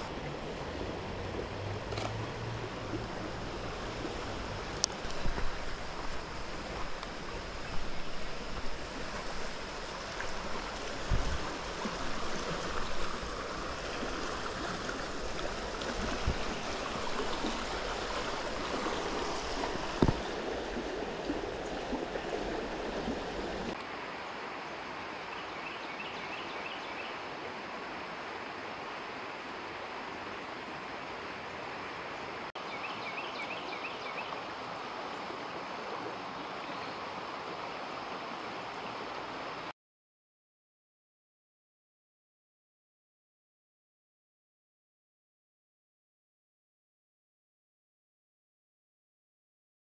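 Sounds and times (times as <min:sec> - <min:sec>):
creek water rushing over rocks: 0:00.0 - 0:39.7.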